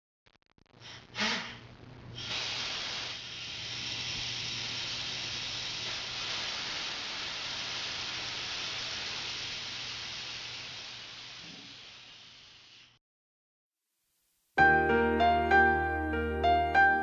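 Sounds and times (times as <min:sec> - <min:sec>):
rain hissing: 0:00.8 - 0:13.0.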